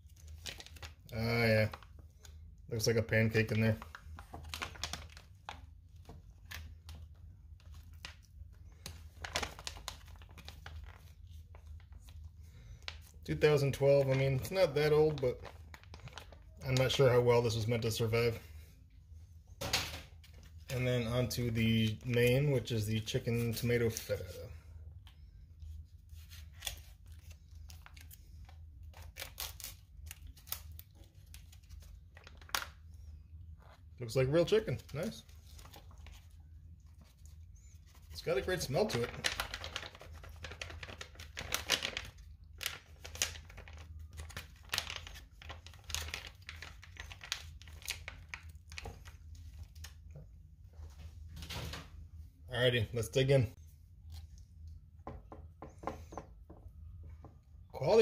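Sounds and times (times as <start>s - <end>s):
plastic pouch crinkling: 0.0s - 17.9s, 25.6s - 32.9s, 33.5s - 50.1s
low steady hum: 0.0s - 58.0s.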